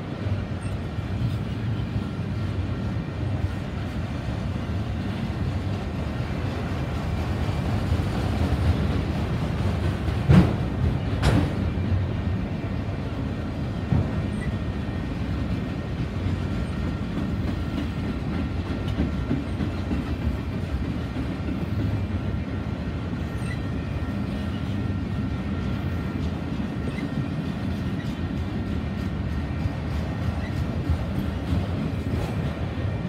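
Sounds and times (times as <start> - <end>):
steel wheels rumbling on rail: 0.0 - 33.0.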